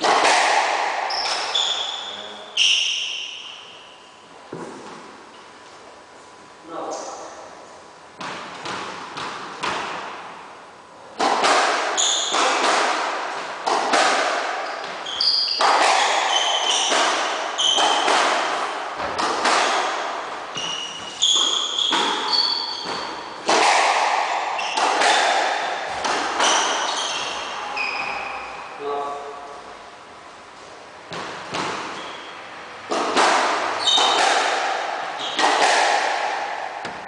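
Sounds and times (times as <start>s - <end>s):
squash ball hits echoing: 0.0s - 3.8s, 8.2s - 10.4s, 11.1s - 28.8s, 31.1s - 37.0s
shoe squeaks on wooden floor: 1.1s - 3.1s, 12.0s - 12.4s, 14.6s - 18.1s, 20.5s - 23.3s, 26.4s - 28.7s, 31.9s - 32.4s, 33.8s - 34.2s, 35.2s - 35.4s.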